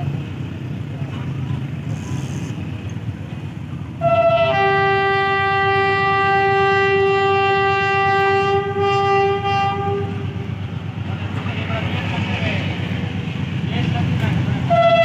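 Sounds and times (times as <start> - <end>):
train rumble: 0.0 - 15.0
locomotive horn: 4.0 - 10.6, 14.6 - 15.0.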